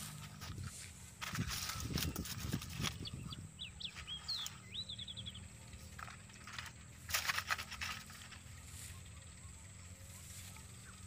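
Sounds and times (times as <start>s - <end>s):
dry leaves rustling and crackling: 0.0s - 3.3s, 5.9s - 9.4s
high bird chirps and trill: 1.3s - 6.7s.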